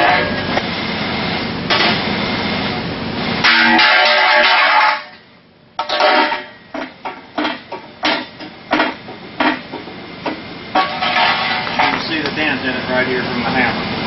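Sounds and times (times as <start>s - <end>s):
loud metallic clank: 0.0s - 0.6s, 1.7s - 2.1s, 3.4s - 5.2s, 5.8s - 12.2s
sharp knocks and clatters: 1.7s - 2.0s, 5.8s - 12.4s.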